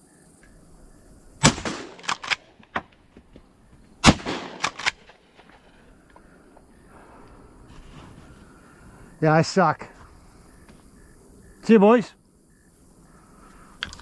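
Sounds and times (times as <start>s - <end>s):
shotgun shots: 1.4s - 2.8s, 4.0s - 5.6s
sharp metallic clicks: 1.4s - 3.0s, 4.0s - 5.2s.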